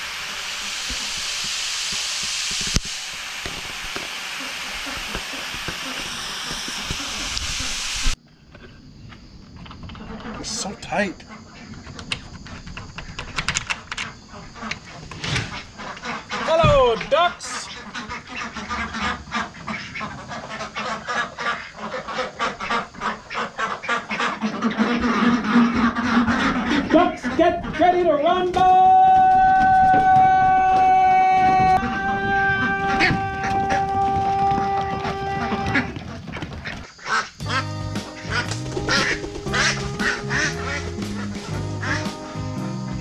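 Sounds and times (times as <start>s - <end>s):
ducks quacking: 14.3s - 28.3s, 31.5s - 43.0s
background music: 37.4s - 43.0s.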